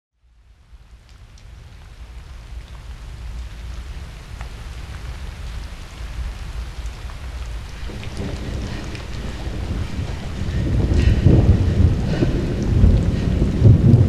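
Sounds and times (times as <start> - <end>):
steady rain: 0.2 - 14.0
low rumble: 7.5 - 14.0
scattered drips: 7.6 - 14.0.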